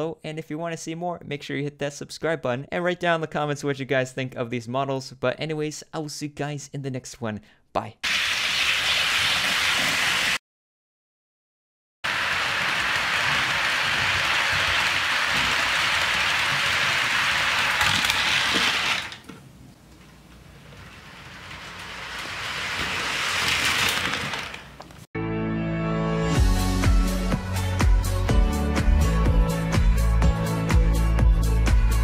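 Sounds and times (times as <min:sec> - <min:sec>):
model train wheels clattering: 0:12.3 - 0:19.4, 0:20.7 - 0:25.0.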